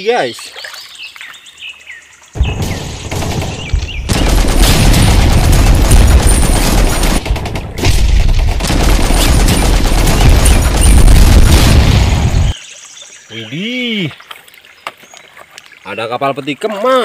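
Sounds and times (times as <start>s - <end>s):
automatic machine-gun fire: 2.4s - 12.5s.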